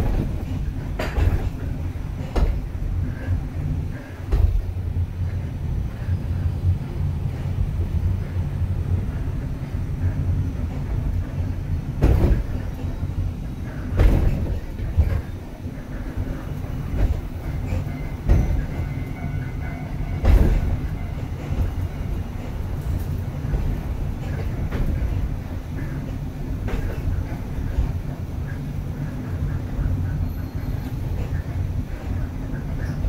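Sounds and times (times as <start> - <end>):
heavy clunk: 0.0 - 1.6, 2.2 - 2.7, 4.3 - 4.7, 12.0 - 12.6, 13.9 - 15.3, 17.0 - 18.7, 20.2 - 20.8
funicular car rumbling on rails: 0.0 - 33.0.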